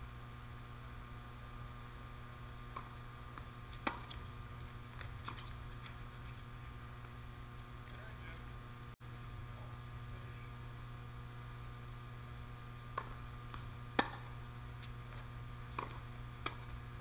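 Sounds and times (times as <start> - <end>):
steady low hum: 0.0 - 17.0
tennis ball bouncing on court: 2.6 - 4.3, 4.9 - 6.2, 12.9 - 16.8
tennis racquet strikes: 2.7 - 4.2, 12.9 - 16.8.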